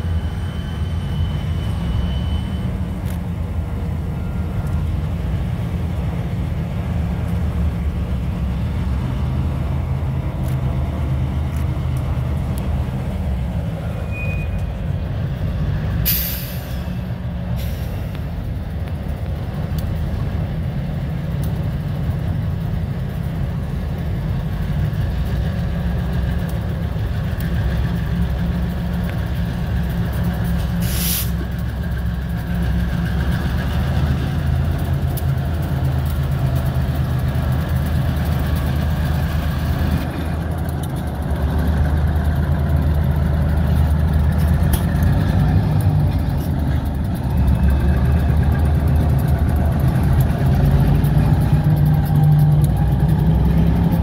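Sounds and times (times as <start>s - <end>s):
diesel locomotives running: 0.0s - 54.0s
air hiss: 30.8s - 31.4s.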